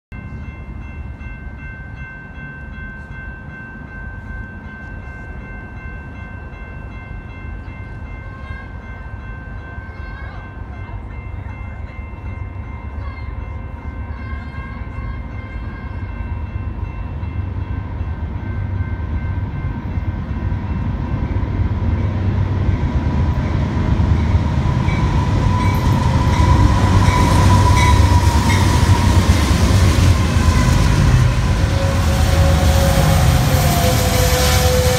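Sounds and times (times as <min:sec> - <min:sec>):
diesel locomotives rumbling: 0:00.1 - 0:34.9
train horn chord: 0:24.9 - 0:34.9.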